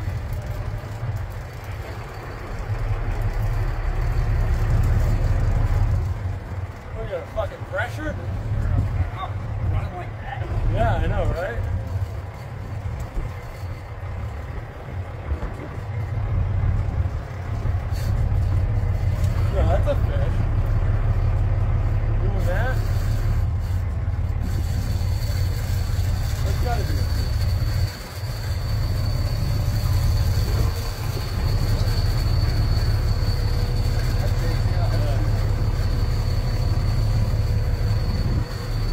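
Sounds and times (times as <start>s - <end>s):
boat engine rumble: 0.0s - 38.9s
faint high whine: 24.4s - 38.9s.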